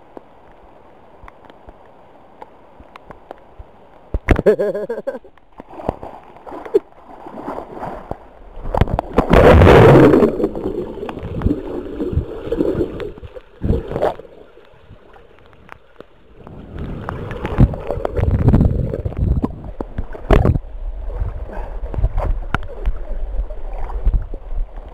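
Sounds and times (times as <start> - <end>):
pool water splashing: 4.7 - 21.5
muffled underwater sound: 8.7 - 24.9.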